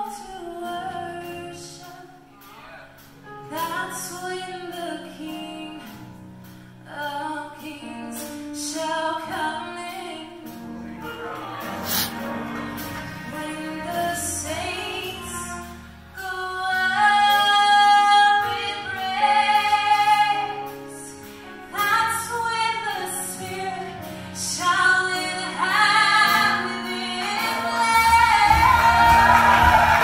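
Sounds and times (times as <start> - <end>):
woman singing gospel solo: 13.3 - 30.0
choir of voices singing: 25.4 - 30.0.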